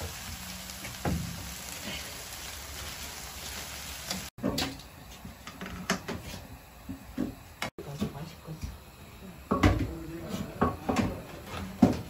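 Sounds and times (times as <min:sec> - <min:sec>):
food sizzling in a frying pan: 0:00.0 - 0:04.4.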